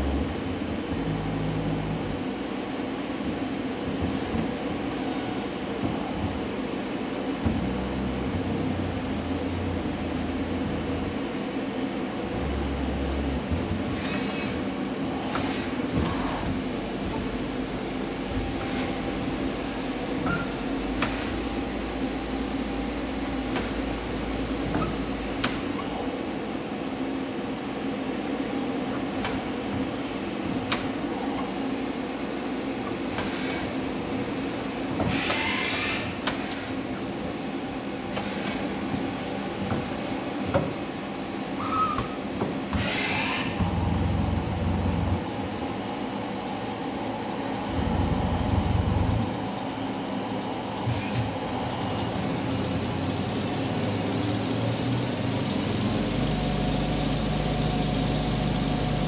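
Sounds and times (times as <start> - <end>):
high spindle whine: 4.9 - 59.0
lathe machine hum: 42.8 - 59.0.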